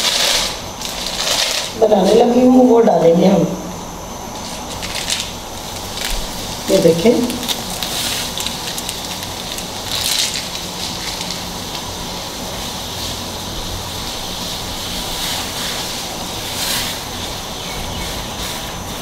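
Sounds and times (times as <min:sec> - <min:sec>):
water hissing in a pan: 0:07.6 - 0:19.0.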